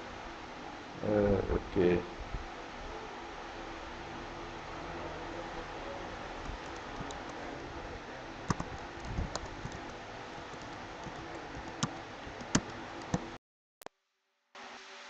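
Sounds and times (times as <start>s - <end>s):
keyboard keys clicking: 6.4s - 7.4s, 8.5s - 13.3s.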